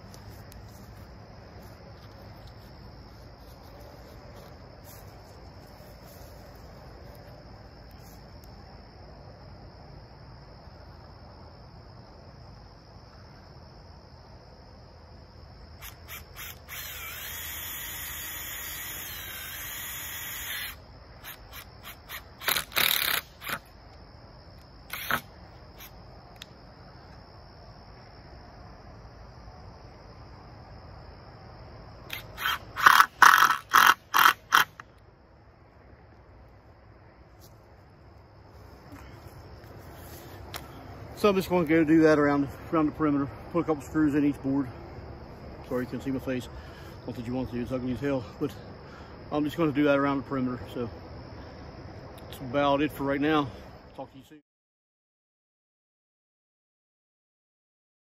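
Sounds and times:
crickets chirping: 0.0 - 54.4
cordless drill driving screw: 15.8 - 23.6.

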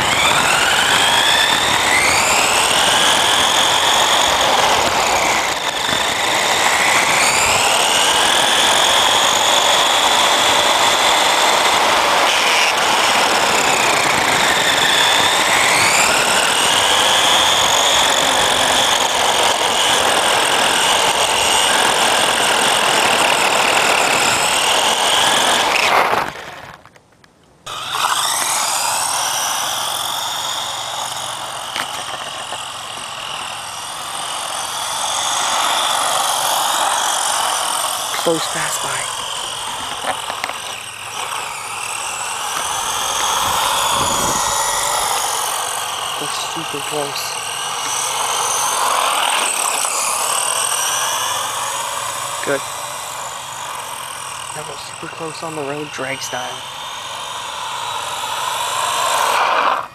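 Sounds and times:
tyres rushing on asphalt: 0.0 - 26.6
toy car motor whining: 0.0 - 27.0, 27.6 - 59.9.

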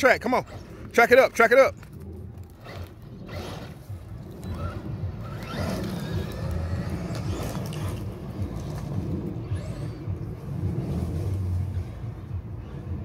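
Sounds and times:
low choppy rumble: 0.0 - 13.0
electric motor whining: 1.8 - 11.6.

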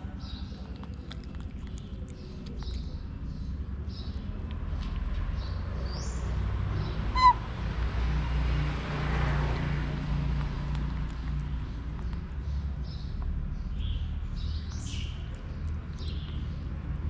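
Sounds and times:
high-pitched animal squeak: 7.2 - 7.4.

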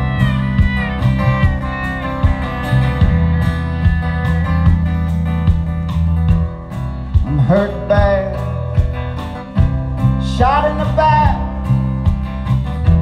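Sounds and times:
fiddle: 0.0 - 7.3
bass line: 0.0 - 13.0
drums: 0.0 - 13.0
strummed acoustic guitar: 0.0 - 13.0.

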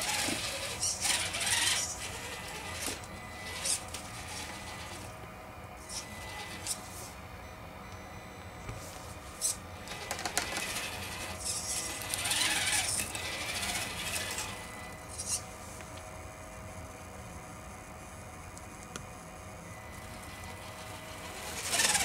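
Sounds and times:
rc car motor whine: 0.0 - 7.2, 9.1 - 15.6, 19.4 - 22.0.

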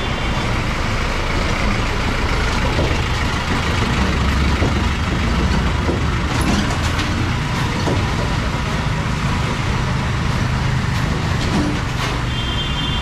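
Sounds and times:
vehicle engine running: 0.0 - 11.4
street noise: 0.0 - 13.0.

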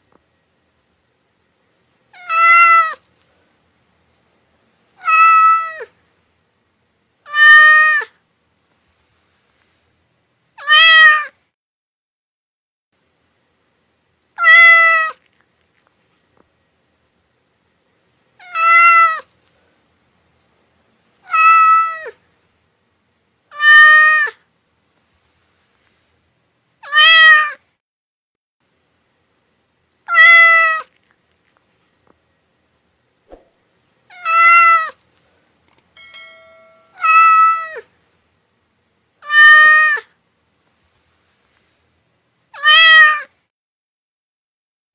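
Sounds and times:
cat meowing: 2.2 - 3.1, 5.0 - 5.9, 7.3 - 8.1, 10.6 - 11.4, 14.4 - 15.2, 18.4 - 19.4, 21.2 - 22.2, 23.5 - 24.4, 26.8 - 27.6, 30.1 - 30.9, 34.1 - 35.0, 36.9 - 37.9, 39.2 - 40.1, 42.6 - 43.3.

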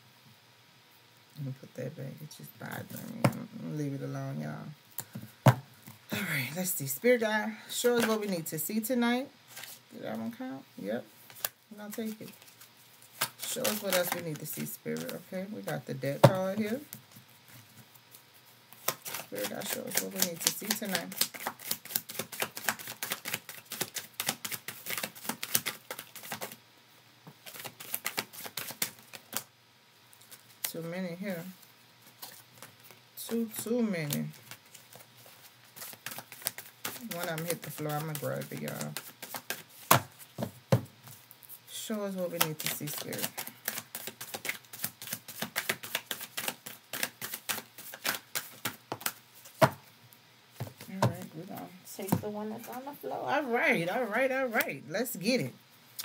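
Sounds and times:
cards being shuffled: 11.3 - 26.6, 27.4 - 29.5, 32.0 - 41.6, 42.2 - 49.8.

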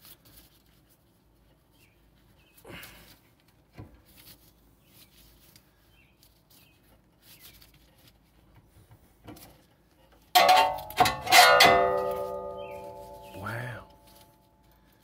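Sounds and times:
loud ringing metallic clang: 10.4 - 14.1.

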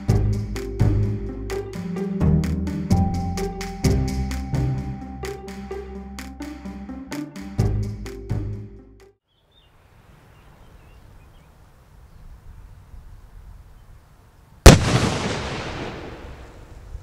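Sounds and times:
faint outdoor background: 0.0 - 17.0
dynamite blast with echo: 14.7 - 16.8.

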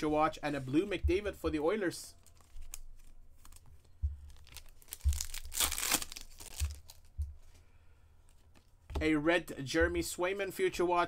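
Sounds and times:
foil pack crinkling: 2.2 - 7.1
foil pack ripped open: 4.8 - 7.0.

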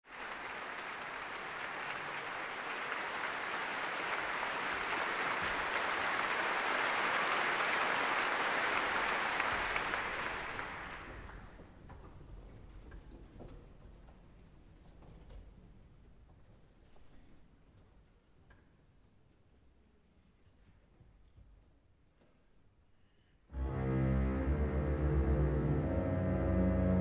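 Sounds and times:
audience applauding: 0.0 - 11.6.

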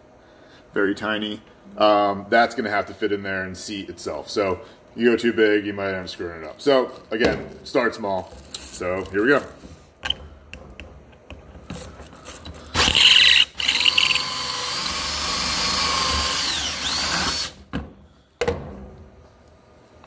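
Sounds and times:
cordless drill boring: 12.7 - 17.6.

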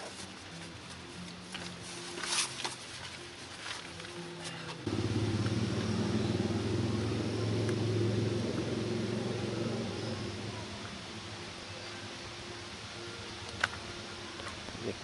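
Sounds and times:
motor vehicle engine rumble: 4.2 - 12.8.

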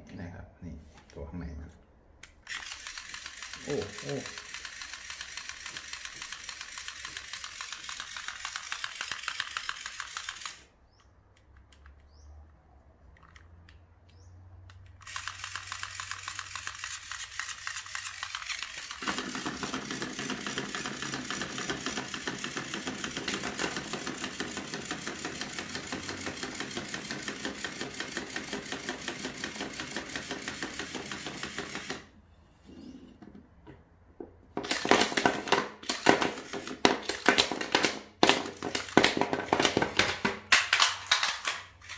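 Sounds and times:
toy motor rattling: 2.4 - 10.8, 14.7 - 32.1, 34.6 - 37.6, 38.3 - 41.9.

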